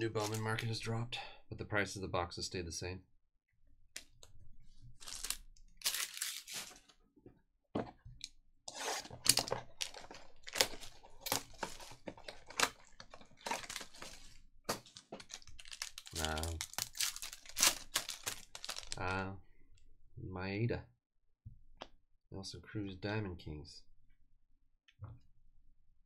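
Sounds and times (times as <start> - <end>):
cards being shuffled: 5.0 - 6.8, 13.5 - 19.0
plastic wrapping crinkling: 5.0 - 6.9, 9.2 - 19.2.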